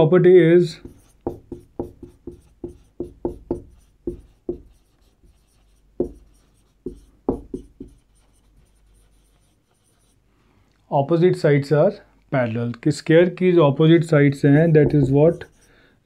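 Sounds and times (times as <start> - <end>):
marker writing on whiteboard: 0.7 - 10.2, 14.6 - 15.8
marker tip tapping board: 0.8 - 5.4, 6.0 - 8.1, 14.8 - 15.2.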